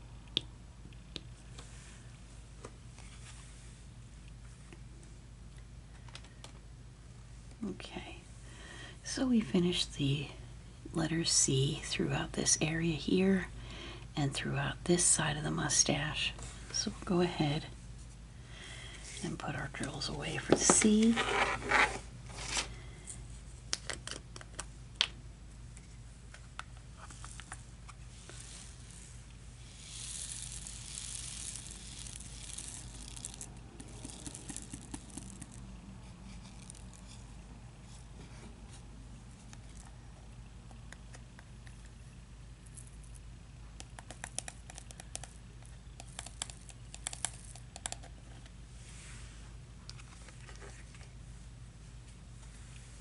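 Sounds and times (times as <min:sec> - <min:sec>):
plastic crinkling: 0:27.0 - 0:35.7
small plastic beads clicking: 0:29.6 - 0:35.7, 0:46.0 - 0:48.1.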